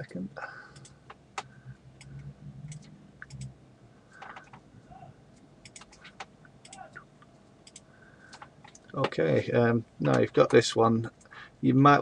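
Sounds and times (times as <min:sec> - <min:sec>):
computer keyboard and mouse clicks: 0:00.8 - 0:03.5, 0:04.2 - 0:04.6, 0:05.6 - 0:06.9, 0:07.6 - 0:09.1.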